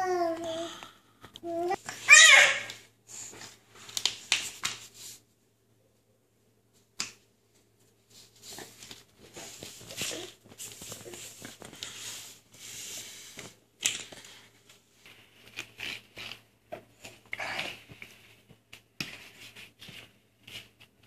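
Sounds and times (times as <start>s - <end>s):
rustling and scraping on foam mat: 2.7s - 5.4s, 7.5s - 21.0s.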